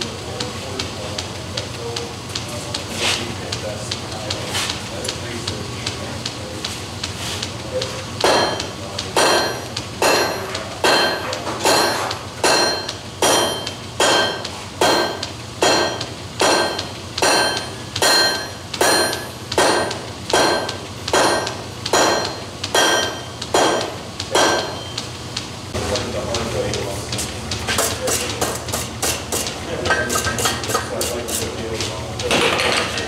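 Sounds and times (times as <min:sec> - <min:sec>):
hammer striking iron on anvil: 0:08.2 - 0:25.0, 0:27.7 - 0:31.5.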